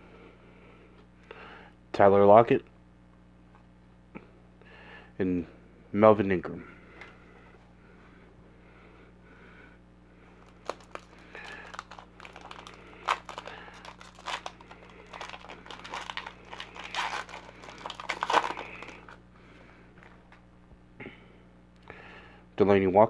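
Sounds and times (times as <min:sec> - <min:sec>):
foil wrapper tearing and crinkling: 0:10.4 - 0:19.2.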